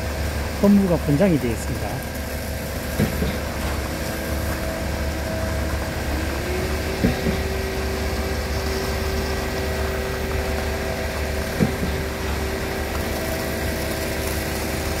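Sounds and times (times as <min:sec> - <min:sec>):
truck engine running: 0:00.0 - 0:15.0.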